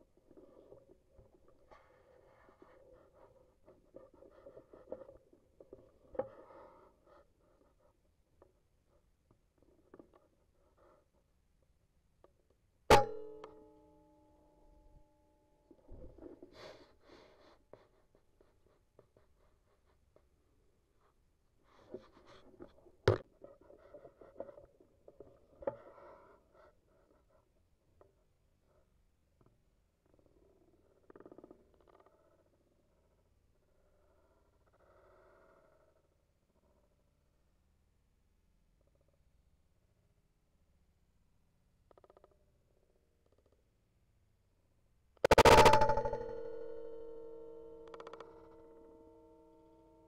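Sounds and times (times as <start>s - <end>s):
sharp click: 45.3s - 48.3s.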